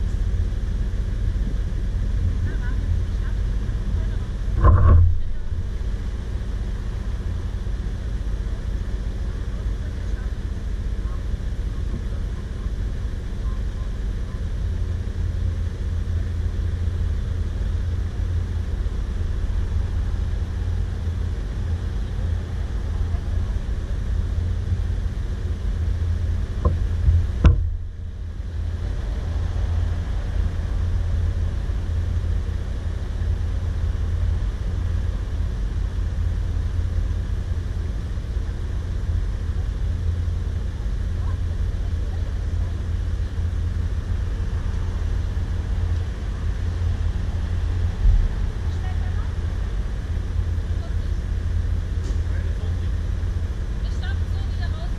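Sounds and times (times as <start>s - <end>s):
vehicle engine low rumble: 0.0s - 54.9s
short knocks: 26.6s - 27.9s.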